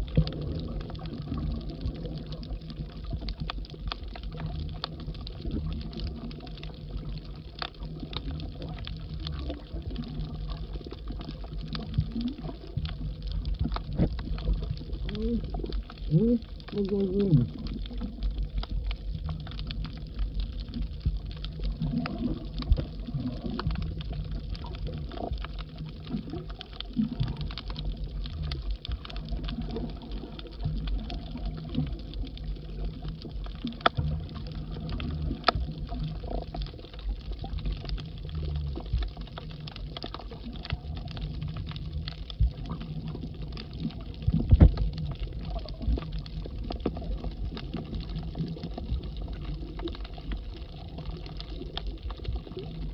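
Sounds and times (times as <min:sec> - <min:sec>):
underwater clicks and crackles: 0:00.0 - 0:52.9
underwater water rumble: 0:00.0 - 0:52.9.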